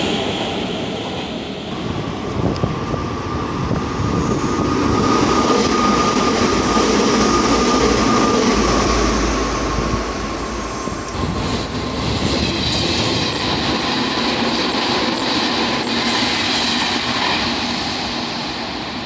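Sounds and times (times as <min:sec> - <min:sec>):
train passing over level crossing: 0:00.0 - 0:19.0
steady high tone: 0:02.7 - 0:12.2.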